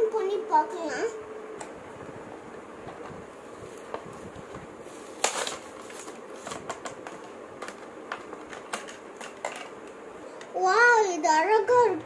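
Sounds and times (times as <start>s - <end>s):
stiff plastic crackling: 2.8s - 10.0s.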